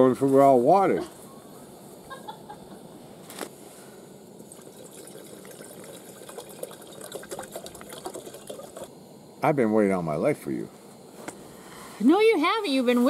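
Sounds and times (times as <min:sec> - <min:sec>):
water pouring into pot: 0:04.4 - 0:08.9.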